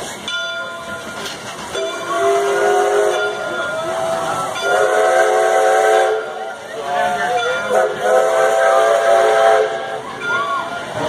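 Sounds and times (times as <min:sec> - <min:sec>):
steam whistle blasts: 0:01.7 - 0:03.9, 0:04.5 - 0:10.2.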